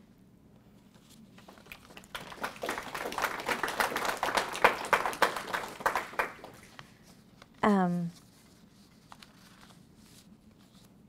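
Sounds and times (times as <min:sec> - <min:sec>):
audience applauding: 0:01.4 - 0:06.8.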